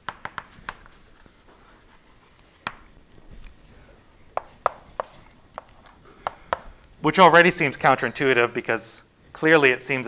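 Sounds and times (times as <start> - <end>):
chalk tapping on a blackboard: 0.0 - 1.0, 4.3 - 6.7.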